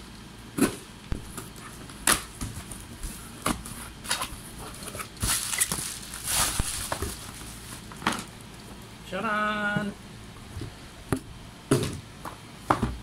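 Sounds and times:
plastic bubble wrap crinkling: 5.0 - 8.7.

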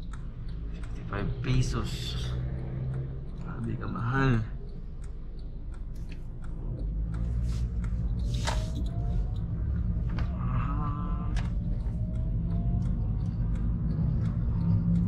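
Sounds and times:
car engine and road rumble: 0.0 - 15.0
light ticks and clicks: 0.0 - 15.0
faint rising whine: 6.5 - 15.0.

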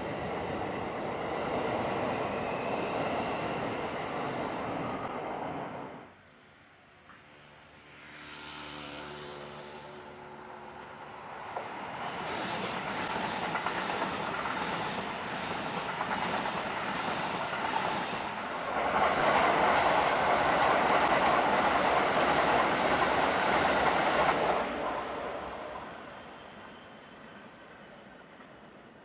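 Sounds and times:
electric trains passing: 0.0 - 29.0
wheels clacking on rails: 10.7 - 26.1.

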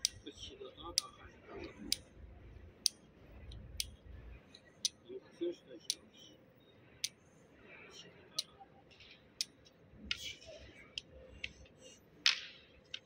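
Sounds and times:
wooden game pieces clicking: 0.0 - 0.2.

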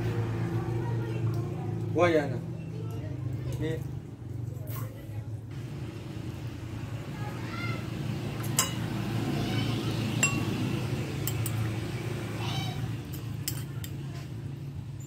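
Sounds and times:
clinks against glass bowl: 8.6 - 8.9, 10.2 - 10.6, 11.2 - 11.6, 13.1 - 14.0.

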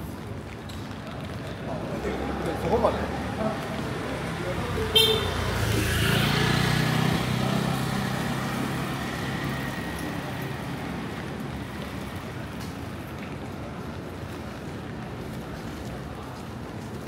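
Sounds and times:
vehicle passing on wet street: 0.0 - 17.0.

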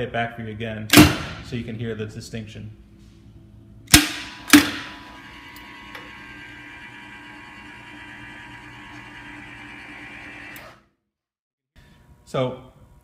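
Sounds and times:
valve motor humming: 4.4 - 10.6.

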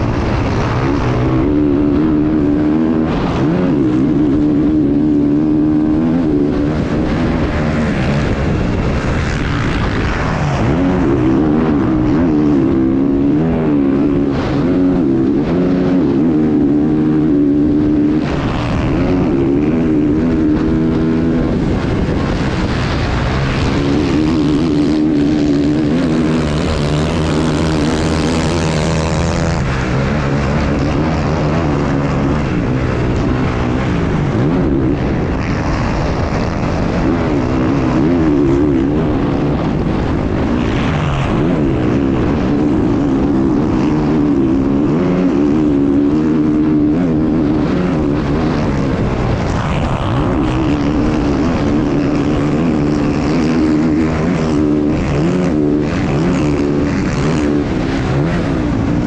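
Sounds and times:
motorcycle engine revving: 0.0 - 59.0
wind rushing: 0.0 - 59.0.

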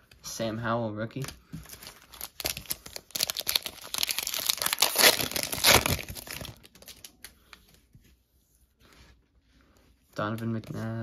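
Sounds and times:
plastic wrapper crinkling and tearing: 1.2 - 7.4.

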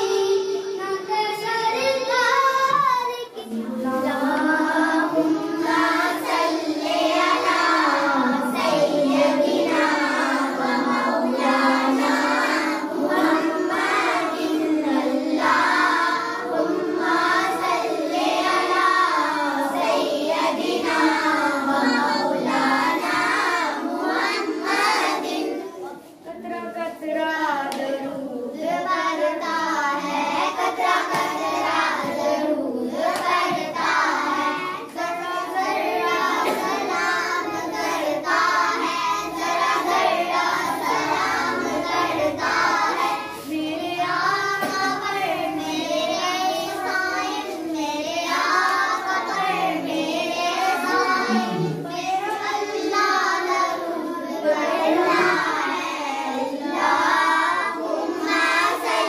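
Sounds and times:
children singing a hymn: 0.0 - 26.2, 27.2 - 59.0.

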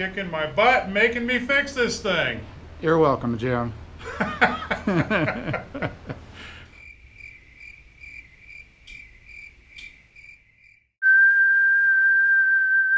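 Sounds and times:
faint high chirping: 6.8 - 12.9.

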